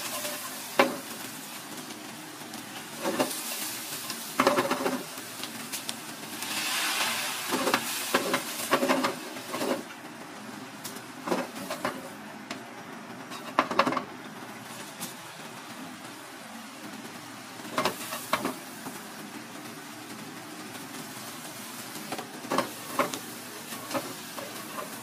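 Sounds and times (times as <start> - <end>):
food sizzling in frying pan: 0.0 - 25.0
pan scraping and clattering: 3.0 - 5.1, 6.4 - 9.9, 22.1 - 25.0.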